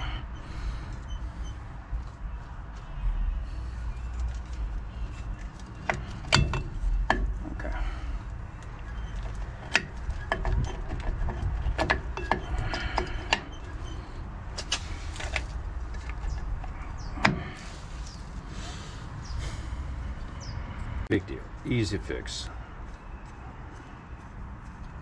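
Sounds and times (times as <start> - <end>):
metal brake hardware clinking: 4.0 - 13.9.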